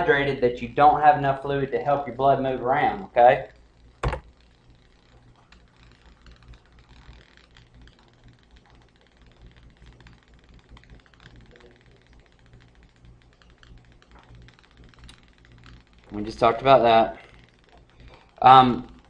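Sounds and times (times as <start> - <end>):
low electrical hum: 0.0 - 19.0
keyboard typing clicks: 4.0 - 4.3.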